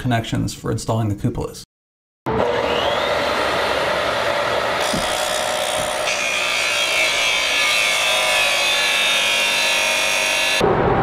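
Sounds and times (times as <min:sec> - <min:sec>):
chop saw grinding: 0:04.3 - 0:10.6.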